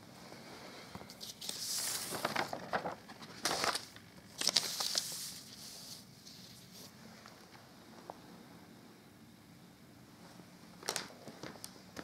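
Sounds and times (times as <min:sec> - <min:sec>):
paper rustling and crackling: 0:01.0 - 0:07.4.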